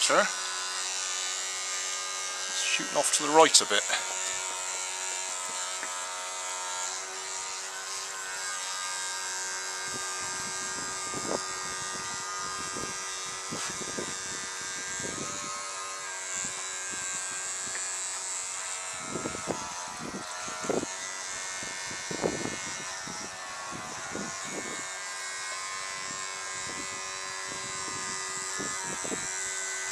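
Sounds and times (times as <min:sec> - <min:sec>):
electric toothbrush motor buzzing: 0:00.0 - 0:29.9
wind rumbling on microphone: 0:09.8 - 0:15.6, 0:19.0 - 0:20.9, 0:21.6 - 0:24.9, 0:26.0 - 0:29.4.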